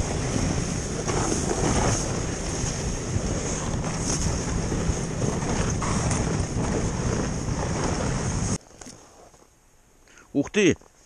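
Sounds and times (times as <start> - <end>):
wind buffeting microphone: 0.0 - 8.6
snowmobile engine rumble: 0.0 - 9.3.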